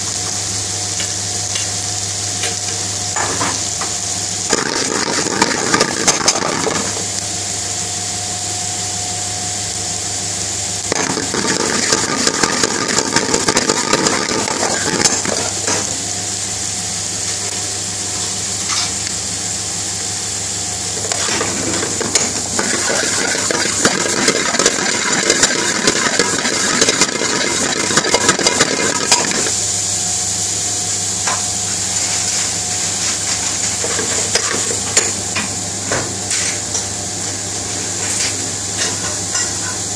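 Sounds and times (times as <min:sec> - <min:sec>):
onions sizzling in oil: 0:00.0 - 0:36.3.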